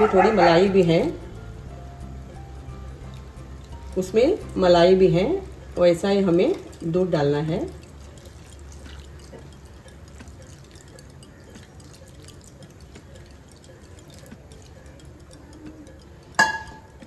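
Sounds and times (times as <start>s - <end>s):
milk pouring and dripping: 0.0s - 17.0s.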